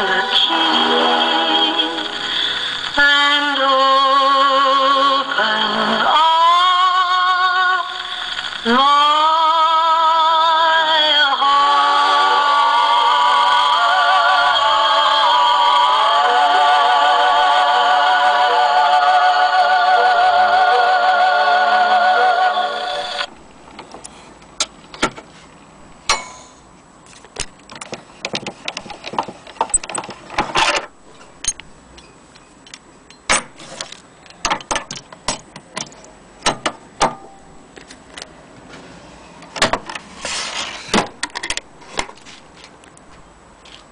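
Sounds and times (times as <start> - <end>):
gramophone playing sung record: 0.0 - 23.3.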